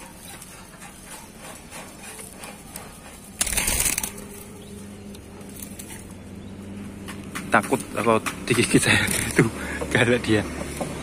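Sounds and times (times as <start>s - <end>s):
bird wings flapping in a cage: 3.4s - 4.5s.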